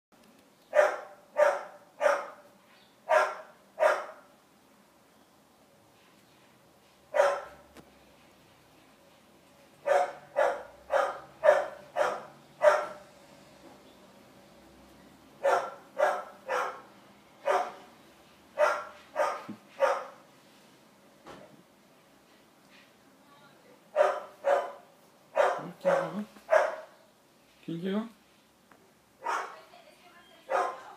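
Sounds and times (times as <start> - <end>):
dog barking: 0.7 - 2.5, 3.1 - 4.3, 7.1 - 7.6, 9.8 - 13.0, 15.4 - 17.9, 18.6 - 20.2, 23.9 - 27.0, 29.2 - 29.6, 30.5 - 30.9.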